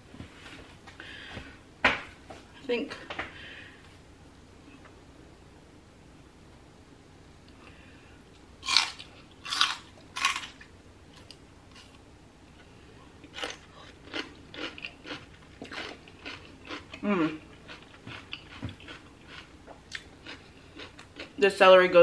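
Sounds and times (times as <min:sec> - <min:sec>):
celery crunching and chewing: 0:08.6 - 0:12.0, 0:13.2 - 0:21.4.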